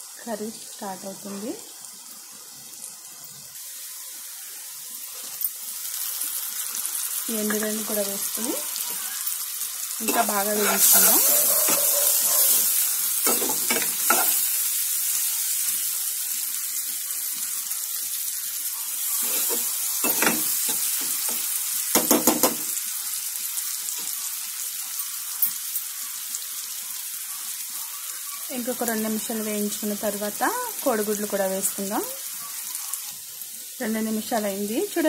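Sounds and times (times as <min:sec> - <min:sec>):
food sizzling in hot oil: 0:00.0 - 0:35.0
spatula scraping and knocking pan: 0:10.0 - 0:14.4.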